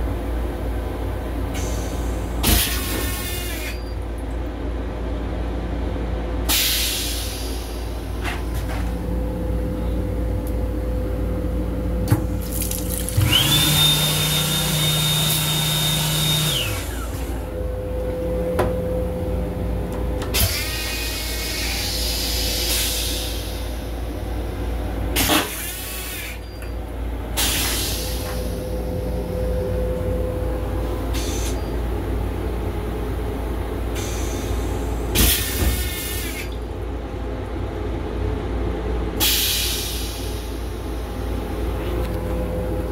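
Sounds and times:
low rumble of moving railcar: 0.0s - 12.5s, 15.8s - 42.9s
high whine and low hum: 0.0s - 39.2s, 39.8s - 42.9s
rushes of water: 12.4s - 13.6s.

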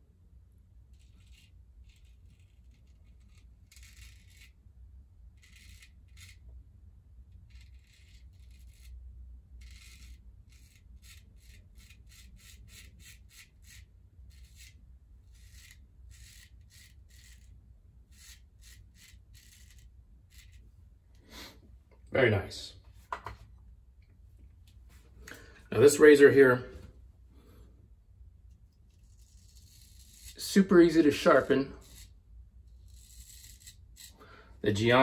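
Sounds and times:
razor cutting whiskers: 0.9s - 4.6s, 5.3s - 6.5s, 7.4s - 9.0s, 9.6s - 20.7s, 28.5s - 34.2s.

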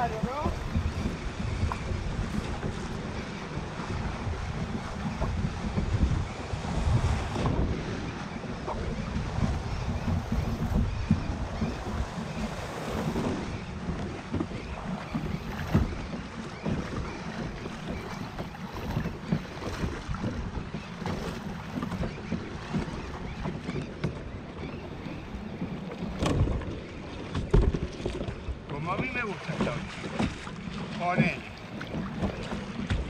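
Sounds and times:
sea waves: 0.0s - 33.0s
wind buffeting microphone: 0.0s - 33.0s
scattered knocks: 26.1s - 30.6s.

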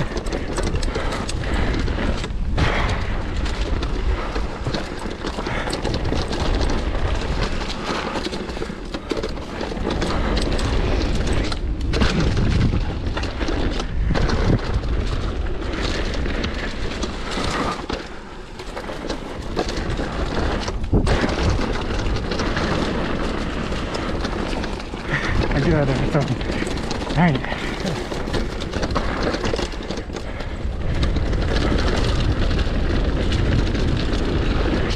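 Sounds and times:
bike frame and chain rattling: 0.0s - 34.9s
tyres crunching on dirt: 0.0s - 34.9s
wind on microphone: 19.5s - 34.9s.

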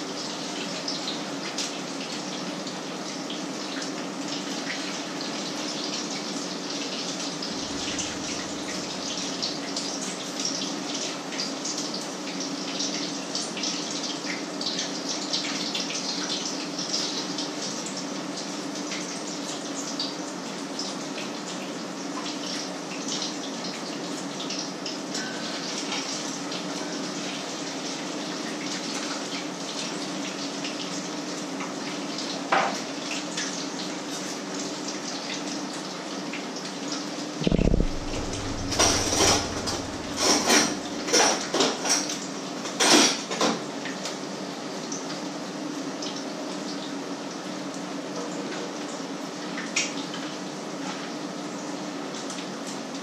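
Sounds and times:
low hum: 7.5s - 9.4s, 37.4s - 41.3s
pans and cutlery clattering: 37.4s - 43.3s.

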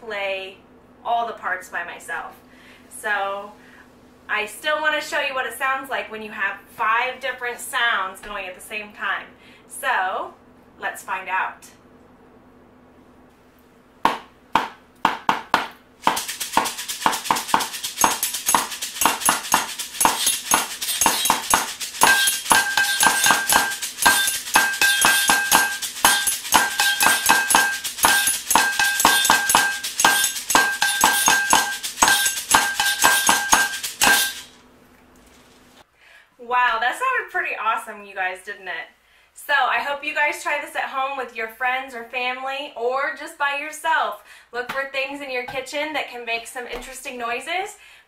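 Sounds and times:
pot and canister drummed: 14.1s - 34.6s
ridged scraper: 16.0s - 34.6s
shaker rattling: 16.0s - 34.6s
glass struck ringing: 17.6s - 34.5s.

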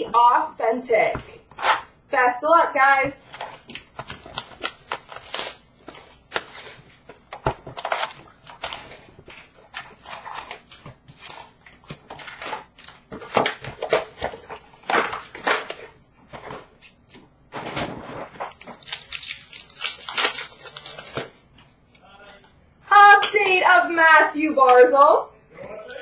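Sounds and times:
plastic wrap and cardboard crinkling: 3.2s - 21.4s.

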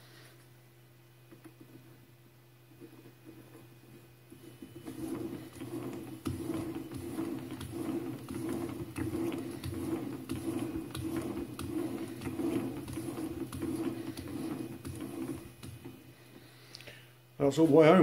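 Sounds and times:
metal lathe humming: 4.5s - 16.4s.

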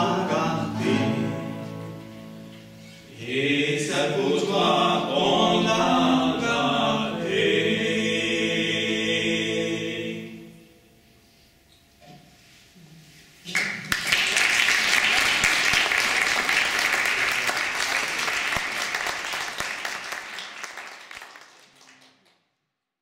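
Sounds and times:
audience applauding: 13.5s - 22.4s.

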